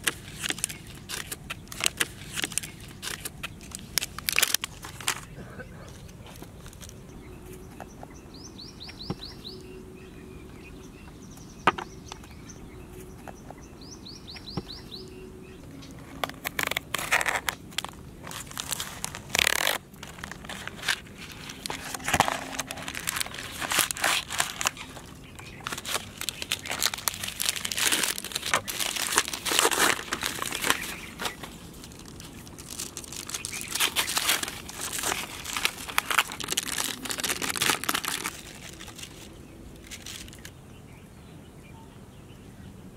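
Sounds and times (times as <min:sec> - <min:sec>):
wrappers tearing and crinkling: 0:00.0 - 0:06.9, 0:16.0 - 0:40.5
birds chirping: 0:05.0 - 0:42.9.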